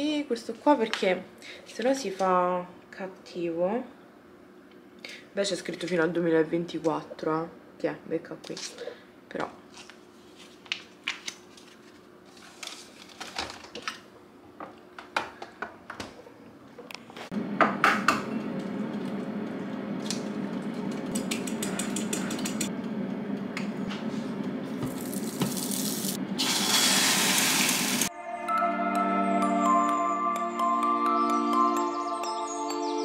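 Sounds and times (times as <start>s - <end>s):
loud hiss: 25.5s - 28.1s.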